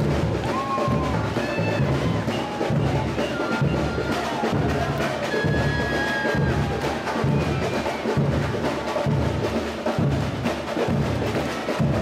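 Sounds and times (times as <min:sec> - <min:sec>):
deep bass-drum beats: 0:00.0 - 0:05.8
samba percussion band: 0:00.0 - 0:12.0.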